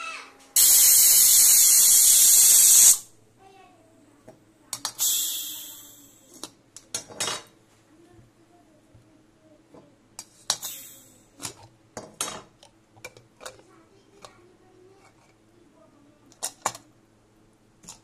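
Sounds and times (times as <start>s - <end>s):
short scraping hiss: 0.6s - 3.1s, 5.0s - 6.0s.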